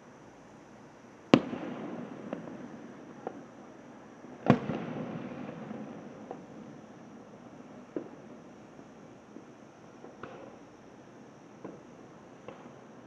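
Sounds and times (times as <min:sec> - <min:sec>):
fireworks bangs with rolling echo: 0:01.3 - 0:03.4, 0:04.4 - 0:08.4
faint fireworks pops: 0:01.3 - 0:10.8, 0:11.5 - 0:13.0.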